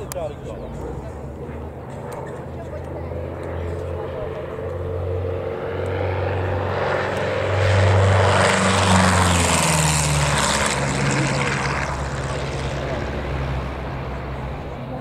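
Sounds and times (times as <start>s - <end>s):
propeller plane flying past: 0.0s - 15.0s.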